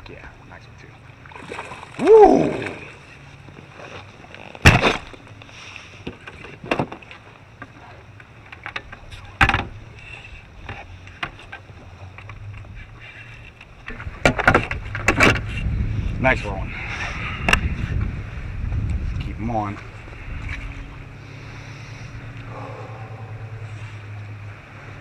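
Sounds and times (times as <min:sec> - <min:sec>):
water: 0:00.0 - 0:25.0
wind: 0:00.0 - 0:25.0
knocks of gear on kayak: 0:04.6 - 0:05.2.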